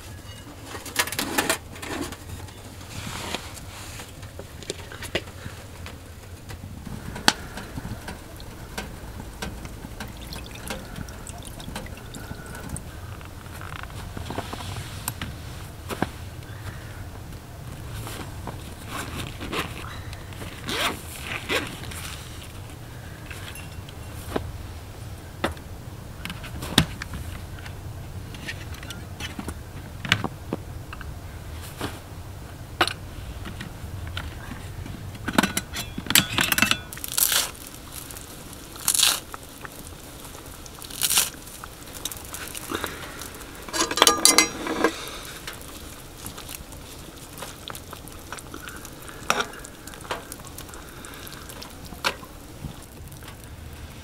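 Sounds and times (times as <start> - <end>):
rustling and crunching of bags: 0.0 - 54.0.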